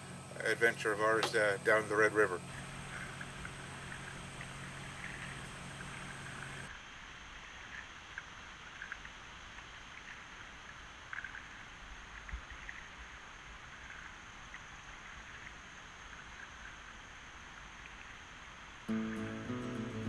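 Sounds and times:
faint water wash: 0.0s - 12.8s
paddle splashes and drips: 2.4s - 6.7s.

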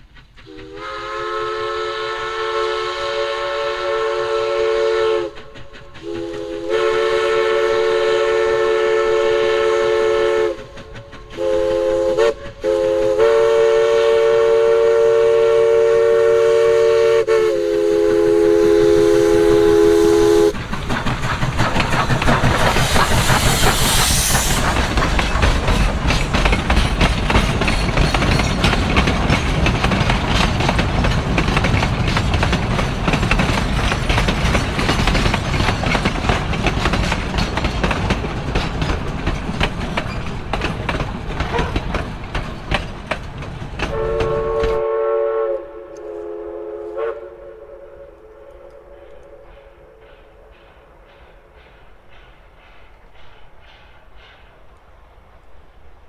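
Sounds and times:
steam locomotive whistle: 0.4s - 10.8s, 11.4s - 20.6s, 43.8s - 50.5s
train cars clattering over rail joints: 20.5s - 44.8s
high hiss: 21.8s - 25.7s.

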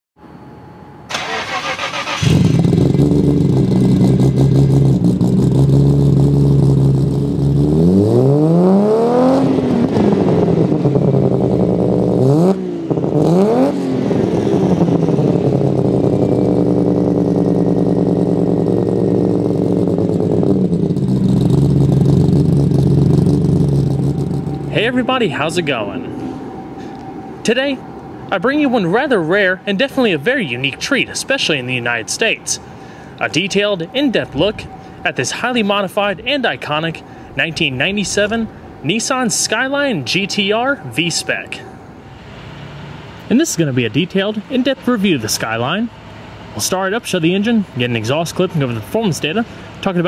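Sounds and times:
engine starter cranking: 1.1s - 4.8s
car engine idling: 1.1s - 8.4s, 9.6s - 50.0s
car engine revving: 1.1s - 50.0s.

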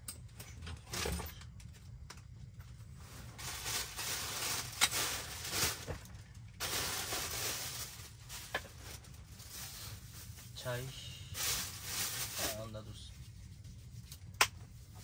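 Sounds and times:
nylon bags being handled: 2.9s - 13.3s.

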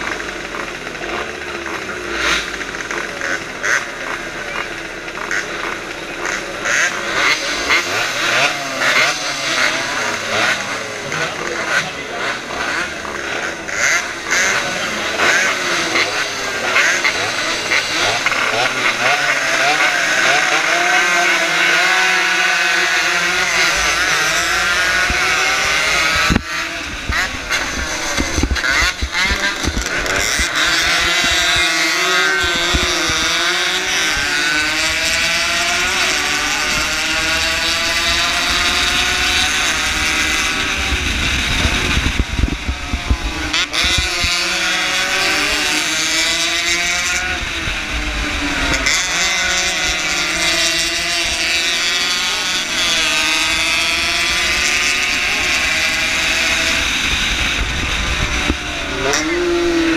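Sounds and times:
motorcycle engine revving: 0.0s - 59.9s
wind buffeting microphone: 23.7s - 31.7s, 36.6s - 44.3s, 56.4s - 59.9s.

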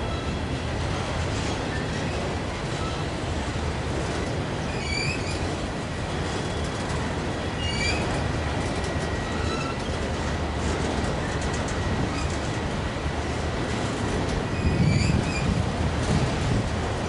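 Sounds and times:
train wheels rumbling on rails: 0.0s - 17.0s
high wheel squeals: 4.7s - 5.5s, 7.5s - 8.2s, 9.1s - 10.0s, 14.5s - 15.6s.

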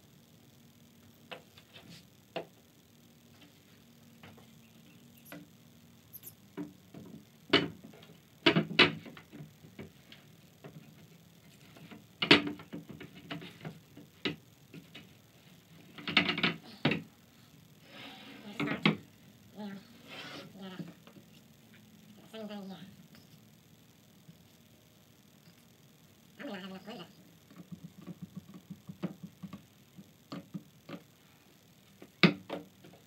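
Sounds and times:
wooden chair parts knocking: 6.6s - 10.0s, 11.8s - 15.1s, 27.5s - 29.6s, 32.0s - 33.0s.

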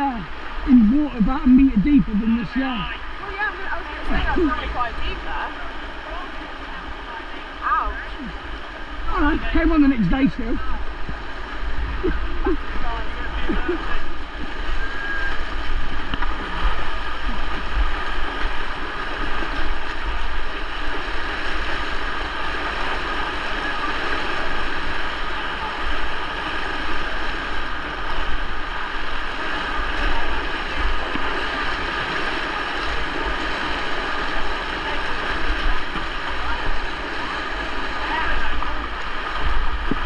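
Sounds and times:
river rushing: 0.0s - 40.0s
wind rumble on microphone: 8.0s - 40.0s.

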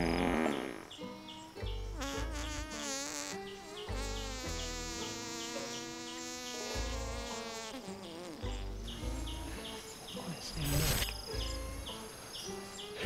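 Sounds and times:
gorilla buzzing farts: 0.0s - 1.0s, 2.0s - 9.4s
background music with bass pulse: 0.0s - 2.7s, 3.4s - 5.2s, 8.4s - 13.0s.

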